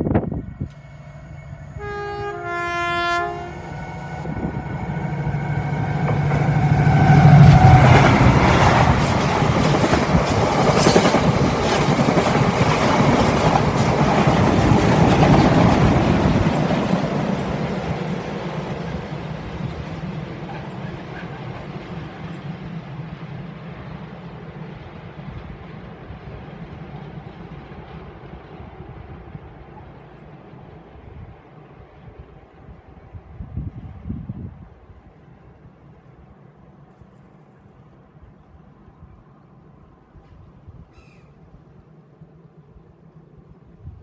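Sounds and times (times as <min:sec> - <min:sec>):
locomotive engine droning: 0:00.0 - 0:10.5
two-note train horn: 0:00.6 - 0:08.0.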